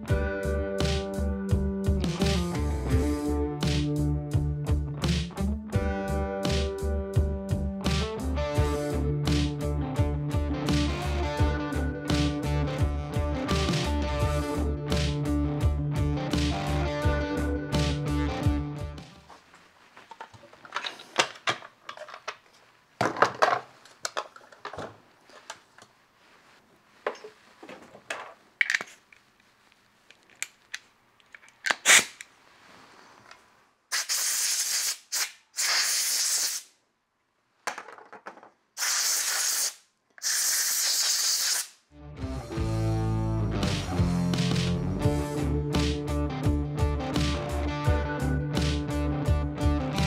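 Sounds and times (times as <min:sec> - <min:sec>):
plastic parts clicking and clattering: 0:20.1 - 0:25.9, 0:27.7 - 0:29.2
compressed air blasts hissing: 0:33.9 - 0:36.7, 0:38.8 - 0:41.8.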